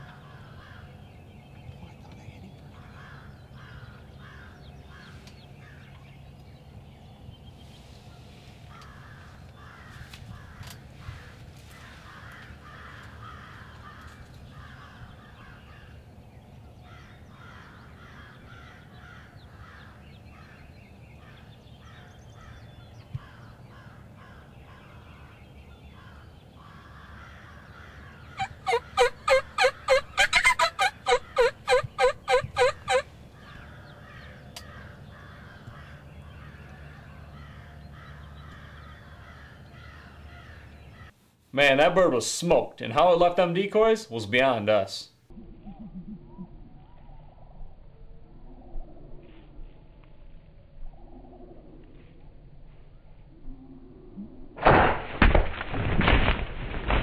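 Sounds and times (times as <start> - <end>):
turkey yelps: 28.3 - 33.1.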